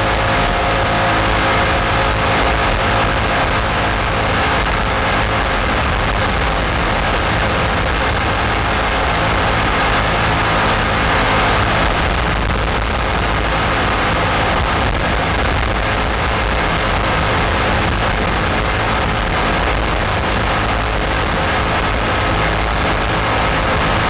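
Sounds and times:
jet boat engine running: 0:00.0 - 0:24.0
rushing noise: 0:00.0 - 0:24.0.

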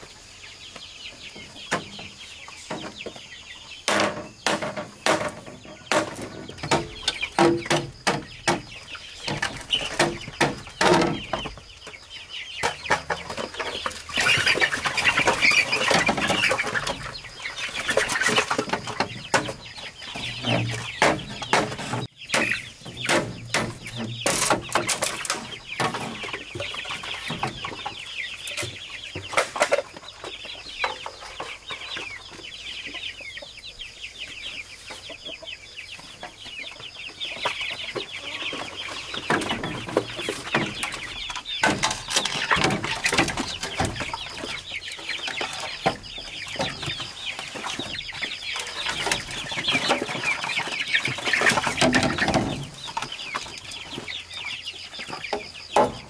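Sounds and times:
chickens clucking: 0:00.0 - 0:56.0
sharp knocks: 0:20.2 - 0:26.7.

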